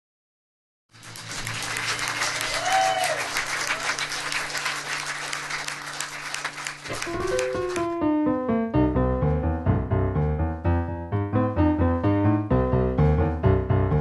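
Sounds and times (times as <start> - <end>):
audience applauding: 0.9 - 8.0
short cheer: 2.1 - 4.4.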